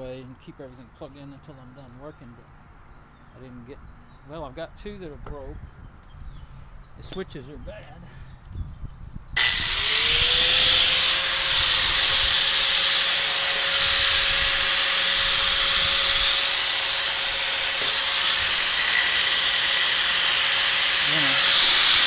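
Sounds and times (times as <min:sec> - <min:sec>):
angle grinder grinding metal: 0:09.4 - 0:22.0.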